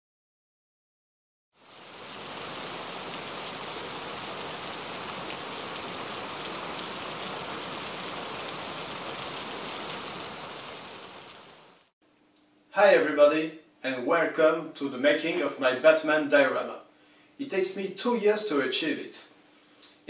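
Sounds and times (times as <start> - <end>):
patter of raindrops: 1.6 - 11.9
steady rain hiss: 1.6 - 12.0.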